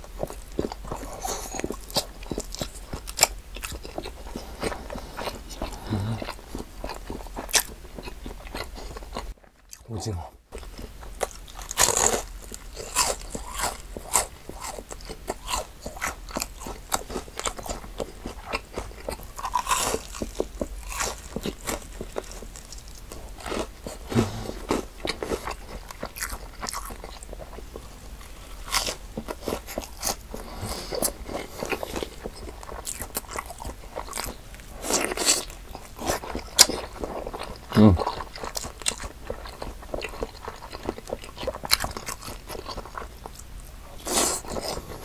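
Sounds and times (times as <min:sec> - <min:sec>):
chewing: 0:00.0 - 0:45.0
crunching fried food: 0:00.0 - 0:45.0.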